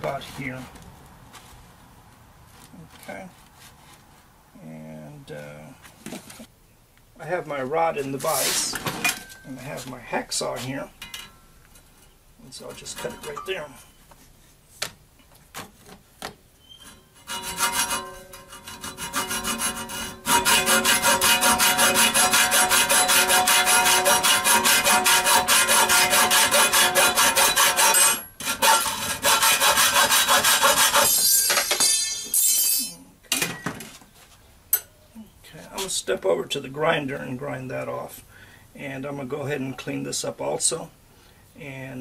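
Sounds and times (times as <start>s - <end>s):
hacksaw cutting metal rod: 16.8s - 32.9s.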